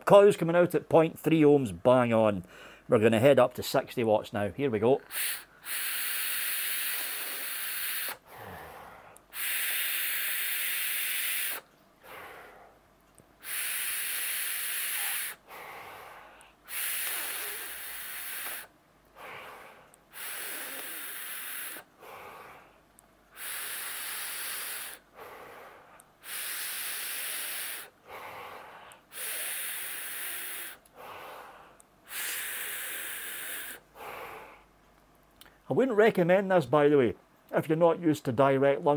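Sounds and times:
soft breathing out: 0:02.5 - 0:02.9, 0:05.1 - 0:12.8, 0:13.4 - 0:34.8
vape inhale hiss: 0:05.1 - 0:12.8, 0:13.4 - 0:22.7, 0:23.3 - 0:34.7.

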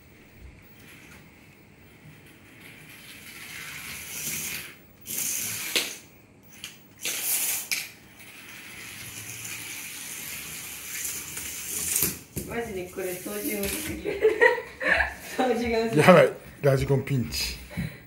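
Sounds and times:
toy car motor and gears whirring: 0:01.9 - 0:12.3.

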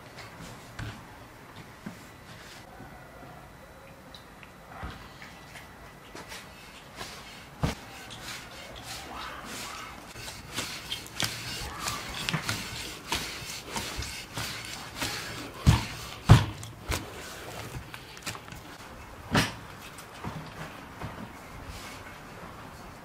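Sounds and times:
hands kneading dough: 0:06.0 - 0:20.2
dull thumps: 0:10.1 - 0:18.6.

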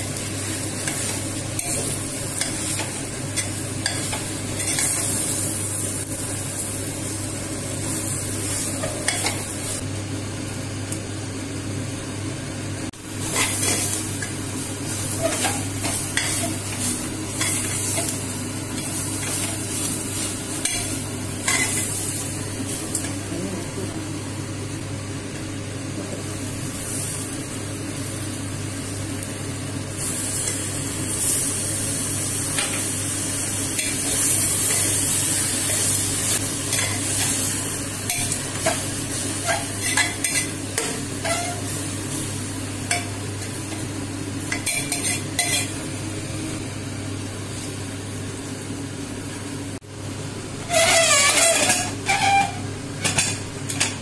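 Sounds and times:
leaves sizzling in hot oil: 0:00.0 - 0:11.5, 0:13.0 - 0:24.8, 0:26.1 - 0:49.8, 0:50.6 - 0:53.9.

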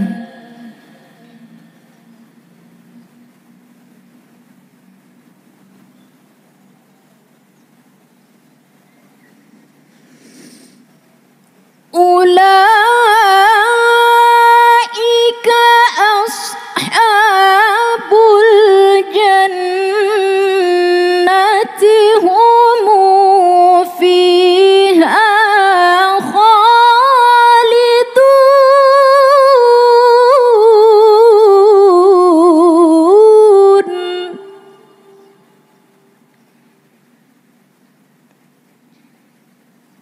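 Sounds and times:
woman reciting melodically: 0:00.0 - 0:02.9, 0:12.0 - 0:36.1.

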